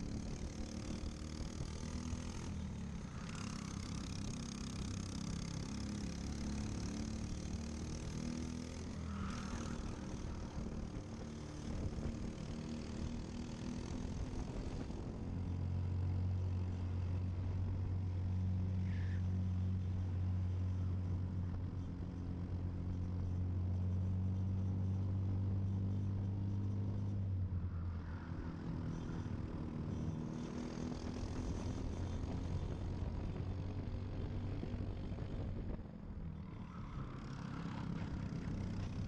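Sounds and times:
kart engine running: 0.0s - 19.2s, 36.8s - 39.0s.

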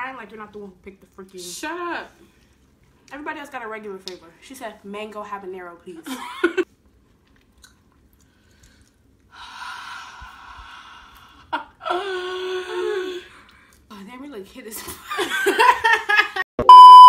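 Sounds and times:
woman whimpering: 11.8s - 13.3s.

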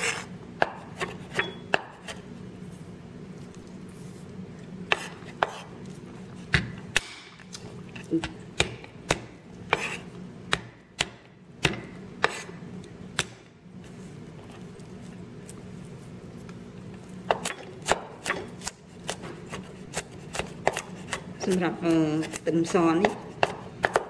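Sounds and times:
steady low hum: 0.0s - 24.0s
cleaver chopping on wooden board: 0.6s - 2.2s, 10.5s - 12.4s, 23.0s - 24.0s.

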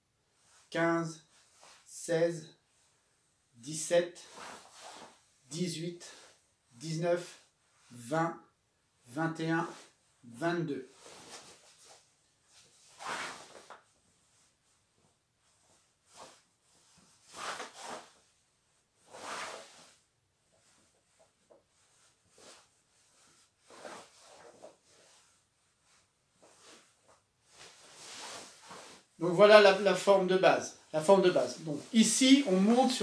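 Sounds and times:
fabric swishing: 4.2s - 5.3s, 10.8s - 29.4s, 30.8s - 33.0s.

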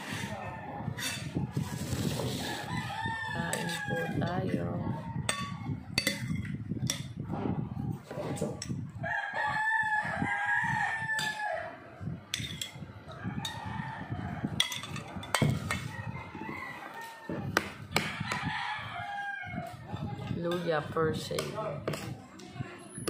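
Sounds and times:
rooster crowing: 2.4s - 4.2s, 9.0s - 11.9s, 13.1s - 14.7s, 15.3s - 19.8s
spoon clinking on ceramic plate: 5.3s - 7.2s, 12.3s - 12.8s, 14.6s - 15.8s.

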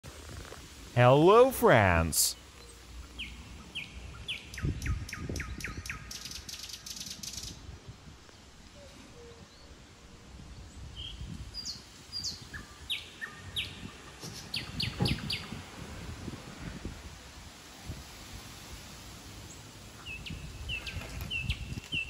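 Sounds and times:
birds singing: 2.3s - 7.6s, 10.6s - 15.6s, 19.5s - 22.0s.

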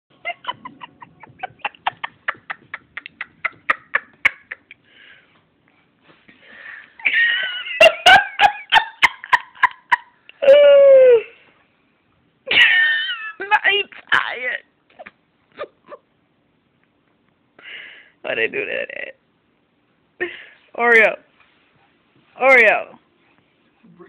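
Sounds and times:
person laughing hard: 0.2s - 4.8s.

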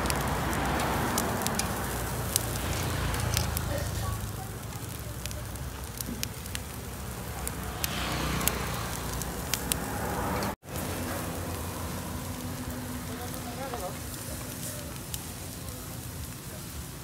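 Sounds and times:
sharp pops from grill: 0.0s - 11.3s
meat grilling crackling hiss: 0.0s - 17.0s.

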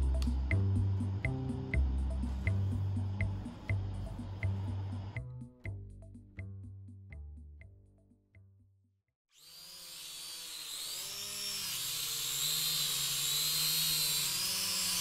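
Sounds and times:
music: 0.0s - 9.1s
drone propellers whirring: 9.7s - 15.0s.

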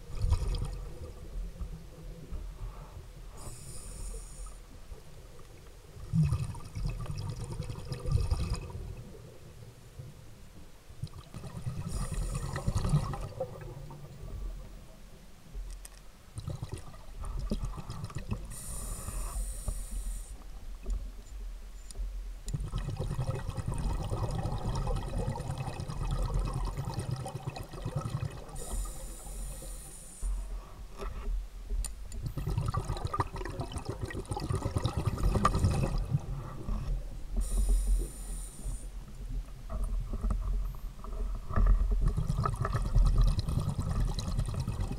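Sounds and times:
bubbling exhaled air underwater: 0.0s - 1.8s, 6.0s - 9.3s, 11.0s - 14.6s, 22.5s - 30.5s, 32.2s - 38.8s, 41.8s - 44.9s
hissing regulator inhale: 2.6s - 4.7s, 18.5s - 20.4s, 28.6s - 30.8s, 37.4s - 39.0s.

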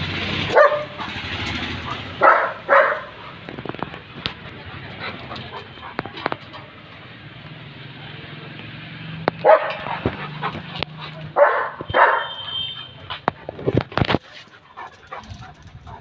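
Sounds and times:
dog barking: 0.5s - 1.2s, 1.8s - 3.4s, 9.4s - 10.1s, 11.0s - 12.8s.

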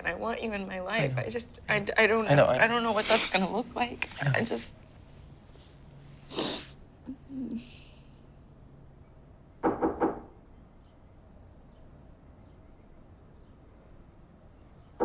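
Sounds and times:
sniff: 6.1s - 6.8s
person crying quietly: 7.0s - 7.9s.

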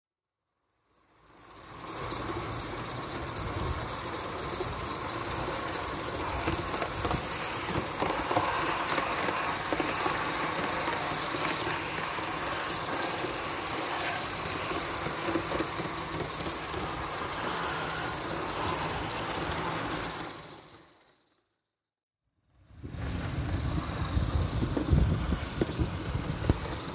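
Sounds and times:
steam hissing: 1.1s - 21.0s, 22.7s - 26.9s.

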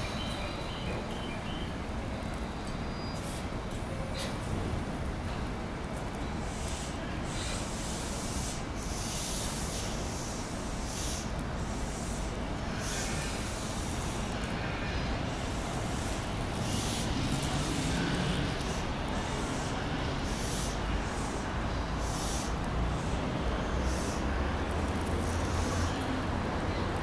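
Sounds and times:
train wheels rumbling on rails: 0.0s - 27.0s
high hissing: 6.8s - 23.2s.

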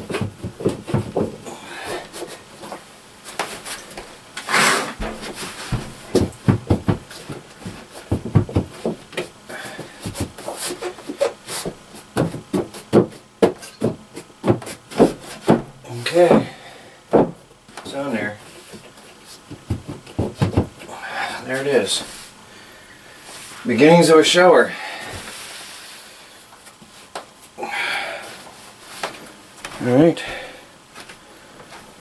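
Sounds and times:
knocks and thumps on wooden boards: 0.0s - 2.8s, 4.9s - 17.9s, 19.5s - 20.9s
scraping and rubbing: 2.1s - 9.0s.

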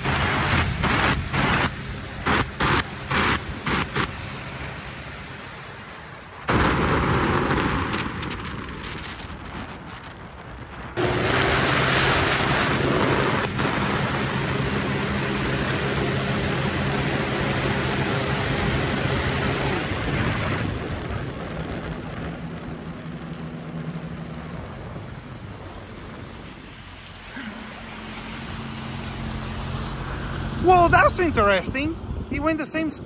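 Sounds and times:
personal watercraft engine: 0.0s - 33.0s.

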